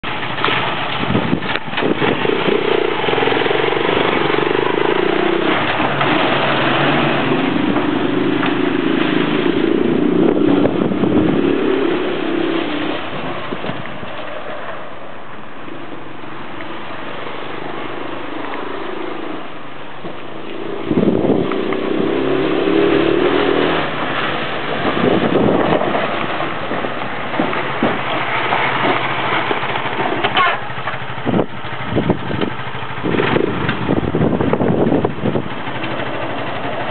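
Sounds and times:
atv engine revving: 0.0 - 36.9.

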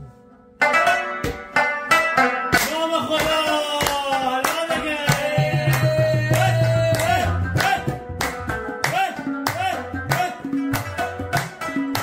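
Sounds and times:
drum strikes: 0.6 - 12.0
deep drum tone: 5.2 - 8.9.

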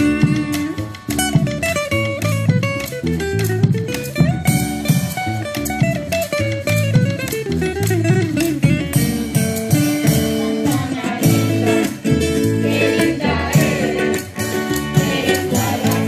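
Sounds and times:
folk guitars dance rhythm: 0.0 - 16.0
voices singing: 10.2 - 16.0.

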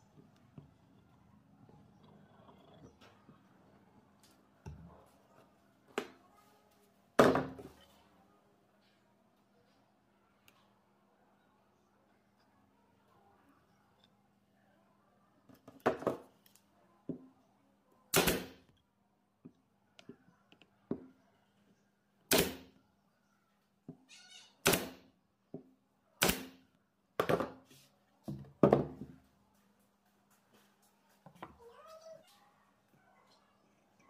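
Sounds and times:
pneumatic nailer firing: 18.1 - 18.6, 22.3 - 22.7, 24.6 - 25.0, 26.2 - 26.6.

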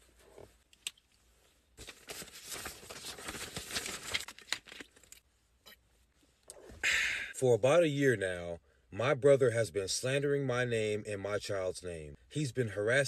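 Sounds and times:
paper rustling and crinkling: 1.8 - 5.2.

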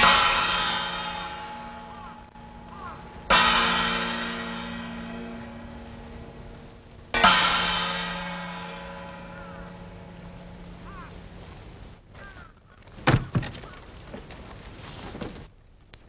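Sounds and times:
gong ringing: 0.0 - 11.4.

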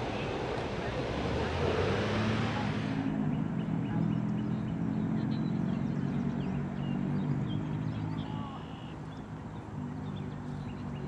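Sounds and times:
jet engines droning overhead: 0.0 - 4.0
small birds chirping: 3.2 - 11.0.

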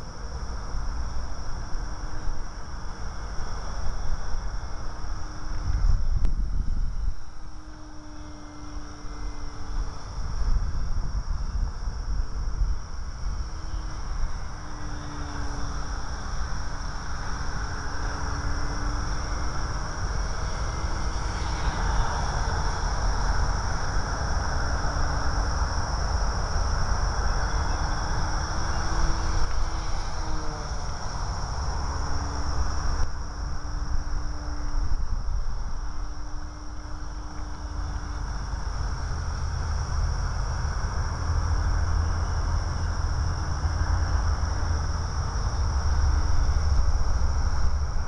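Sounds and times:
high-pitched hum: 0.0 - 48.0
low rumble on microphone: 0.0 - 48.0
model plane motor buzzing: 0.0 - 48.0.

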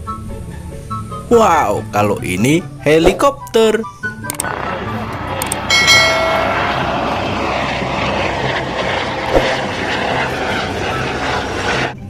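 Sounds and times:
helicopter rotor and engine: 4.0 - 12.0.

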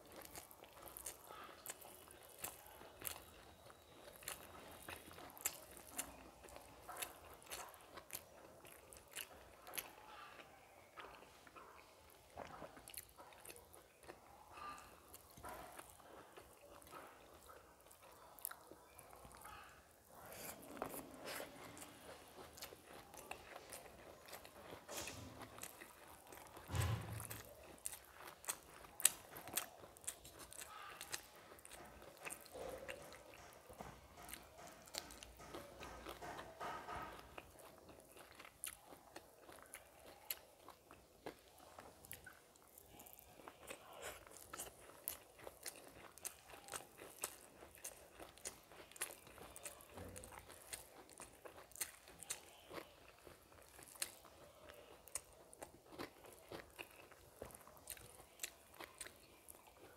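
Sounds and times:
chewing: 0.0 - 59.9
fingers mixing rice on plate: 20.1 - 39.8.

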